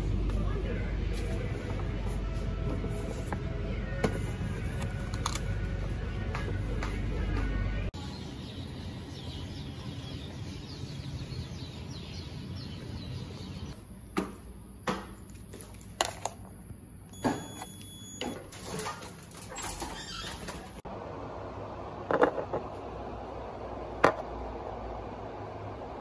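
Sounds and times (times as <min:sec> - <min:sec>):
outdoor background noise: 0:00.0 - 0:26.0
birds chirping: 0:08.0 - 0:13.8.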